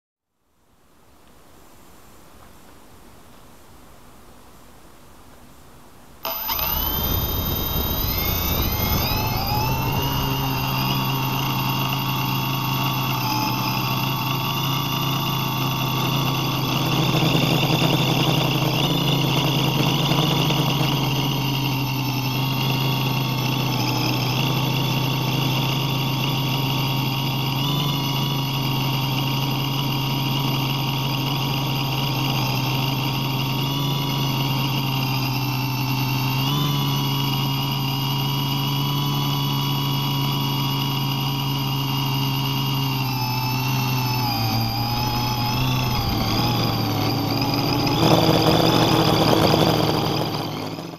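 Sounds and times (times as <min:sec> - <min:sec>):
drone motors whining and buzzing: 0:06.2 - 0:50.9.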